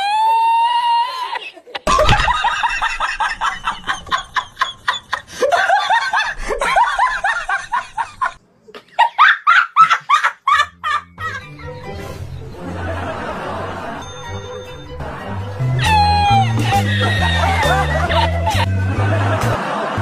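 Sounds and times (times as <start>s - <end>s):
person laughing in bursts: 1.3s - 11.8s, 15.6s - 20.0s.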